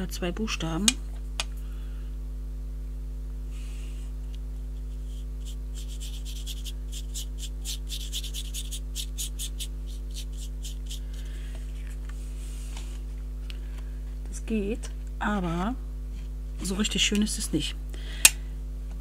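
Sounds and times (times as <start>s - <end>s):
steady electrical hum: 0.0s - 19.0s
rubbing strokes across paper: 4.8s - 11.3s.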